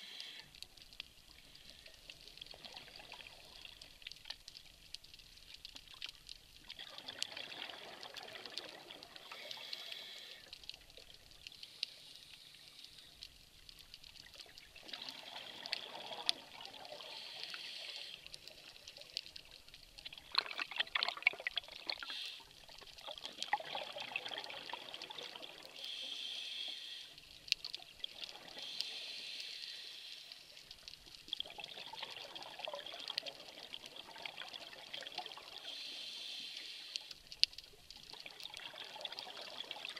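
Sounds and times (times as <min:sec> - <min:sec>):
scuba bubbles gurgling underwater: 0:00.7 - 0:04.9, 0:06.0 - 0:11.8, 0:14.0 - 0:26.3, 0:30.5 - 0:39.9.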